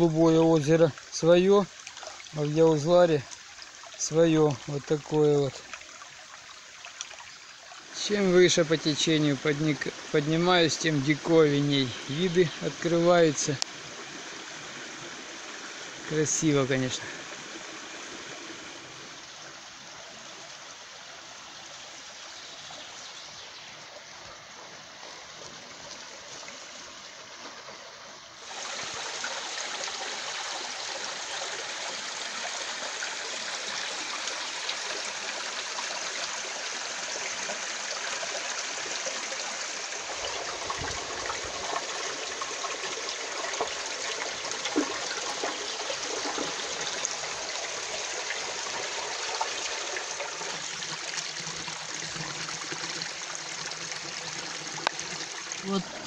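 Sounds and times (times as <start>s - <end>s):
stream running over rocks: 0.0s - 56.0s.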